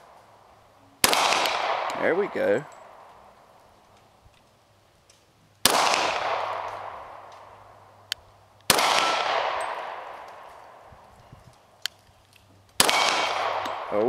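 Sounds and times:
gunshot echo: 0:01.0 - 0:03.1, 0:05.6 - 0:07.5, 0:08.7 - 0:10.8, 0:12.8 - 0:14.0
pistol shots: 0:01.0 - 0:03.1, 0:05.6 - 0:07.6, 0:08.7 - 0:10.8, 0:12.8 - 0:14.0.

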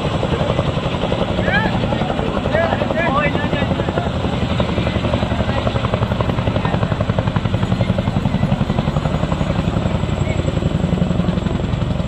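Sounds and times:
helicopter rotors beating: 0:00.0 - 0:12.0.

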